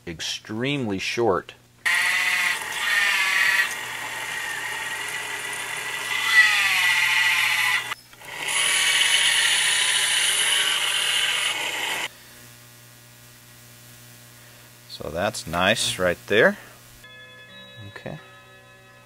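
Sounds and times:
lathe drilling brass whine: 0:01.9 - 0:12.1.

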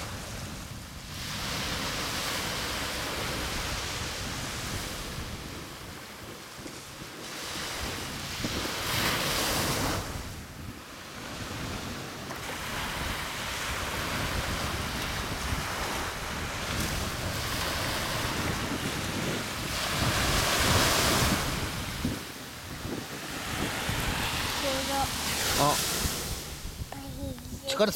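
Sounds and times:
surf washing on shore: 0:00.0 - 0:27.9
wind rumbling on microphone: 0:00.0 - 0:27.9.

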